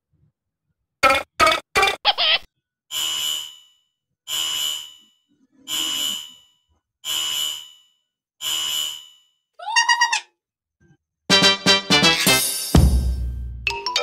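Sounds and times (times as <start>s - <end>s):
shrill electronic alarm beeps: 2.9s - 9.3s.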